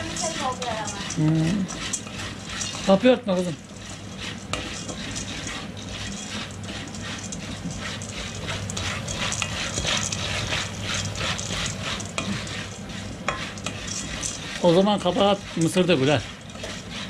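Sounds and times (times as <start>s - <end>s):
popcorn crackling in hot oil: 0.0s - 17.0s
steady low hum: 0.0s - 17.0s.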